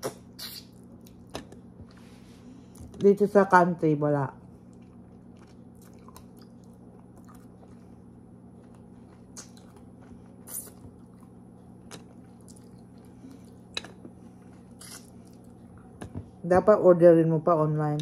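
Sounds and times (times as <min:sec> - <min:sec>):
wet mouth clicks: 0:00.0 - 0:00.8, 0:09.3 - 0:09.6, 0:10.5 - 0:10.8, 0:14.8 - 0:15.1
steady low hum: 0:00.0 - 0:18.0
person chewing food: 0:04.4 - 0:16.2.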